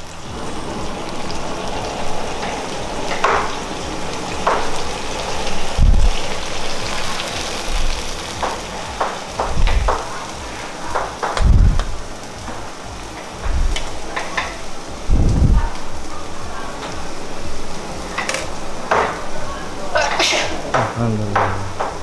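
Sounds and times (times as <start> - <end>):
food sizzling in a wok: 0.0 - 22.0
low thump: 11.4 - 12.0, 15.1 - 15.7, 20.8 - 22.0.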